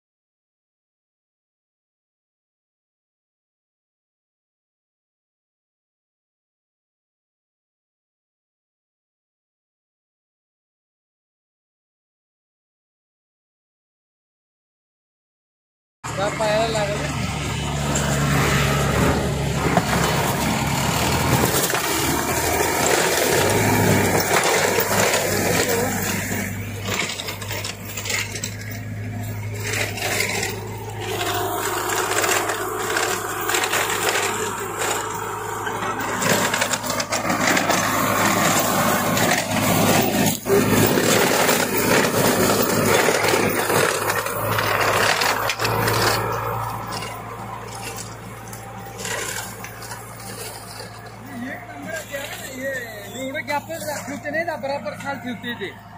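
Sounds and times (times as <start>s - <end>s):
tractor engine hum: 16.0s - 55.9s
cutter clattering and scraping: 16.2s - 55.9s.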